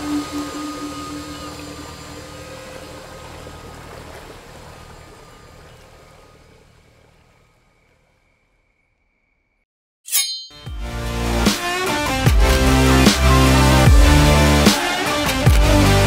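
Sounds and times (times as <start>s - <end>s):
drone propellers whirring: 0.0s - 6.2s.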